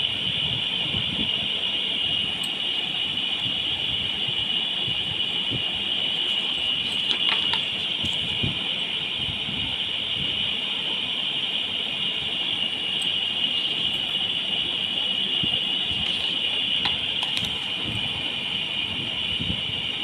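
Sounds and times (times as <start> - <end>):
high-pitched whine: 0.0 - 20.0
notebook pages turning: 6.2 - 8.4, 15.9 - 18.0.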